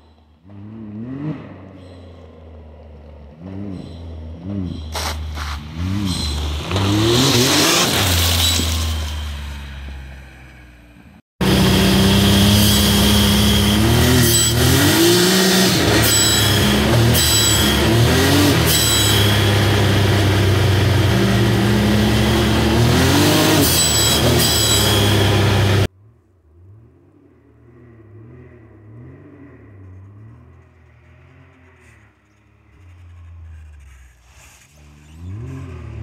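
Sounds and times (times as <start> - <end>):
distant engine revving: 11.4 - 25.9
turbo engine revving: 11.4 - 25.9, 26.5 - 36.0.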